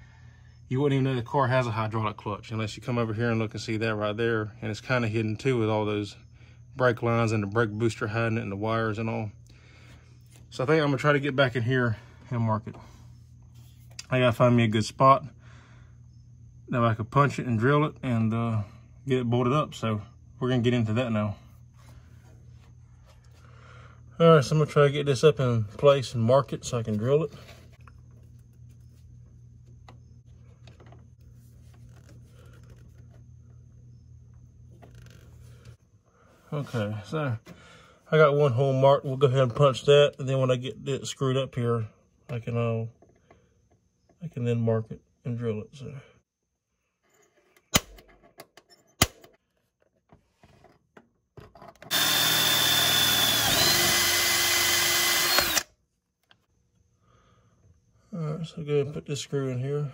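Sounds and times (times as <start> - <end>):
steady low hum: 0.0 - 48.1
cordless drill whining: 51.9 - 55.7.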